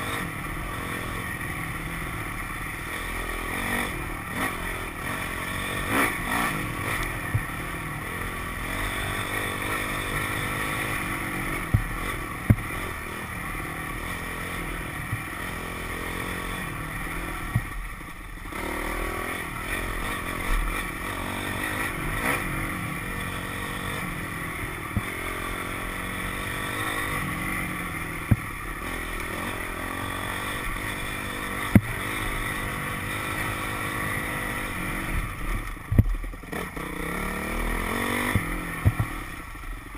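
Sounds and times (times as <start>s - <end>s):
dirt bike engine revving: 0.0s - 39.9s
sharp knocks: 11.7s - 12.7s, 35.9s - 36.2s, 38.3s - 39.2s.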